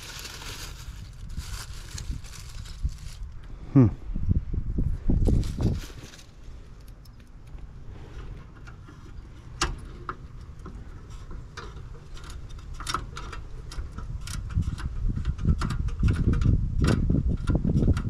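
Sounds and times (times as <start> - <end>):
low rumble: 0.0 - 8.5.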